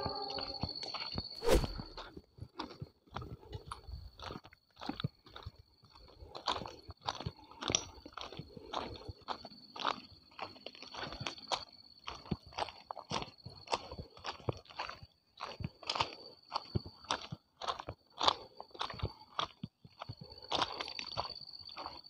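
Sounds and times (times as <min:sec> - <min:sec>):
steady high-pitched tone: 0:00.0 - 0:00.8
footsteps crunching on ballast: 0:01.4 - 0:22.0.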